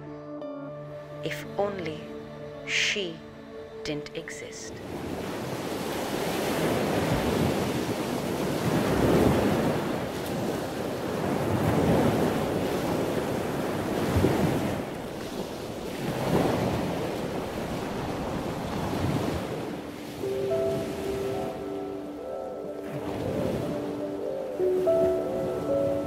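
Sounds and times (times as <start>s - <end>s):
waves breaking on rocky shore: 4.8s - 21.0s.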